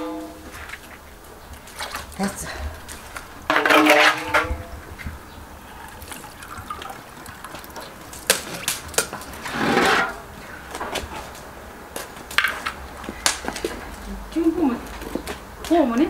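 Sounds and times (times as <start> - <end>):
liquid splashing and dripping: 0.7 - 4.1, 4.8 - 9.6.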